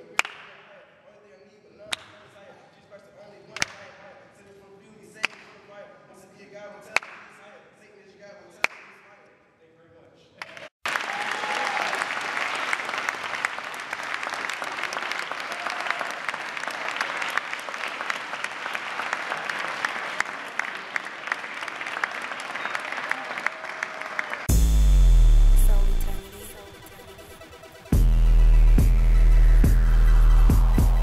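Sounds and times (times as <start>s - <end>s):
audience applauding: 10.4s - 24.5s
electronic dance music: 24.5s - 31.0s.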